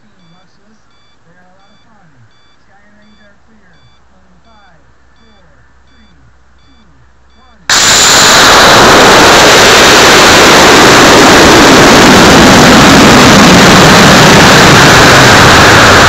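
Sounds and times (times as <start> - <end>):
air rushing past: 7.7 - 16.0
rocket motor burning: 7.7 - 16.0.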